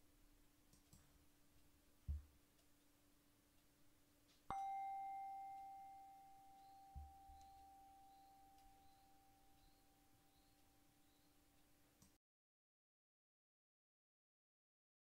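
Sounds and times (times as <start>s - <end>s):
meditation bell ringing: 4.5s - 11.0s.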